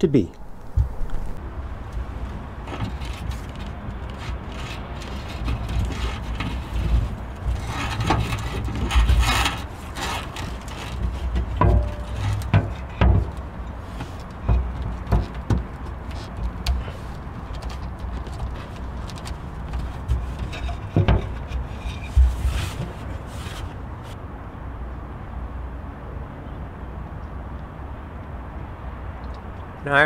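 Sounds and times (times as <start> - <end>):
rubbing and scraping in plastic: 2.6 - 24.2.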